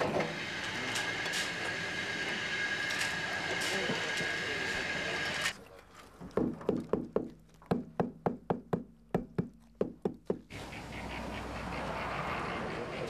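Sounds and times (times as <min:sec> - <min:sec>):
hammer knocks: 0:06.4 - 0:10.5.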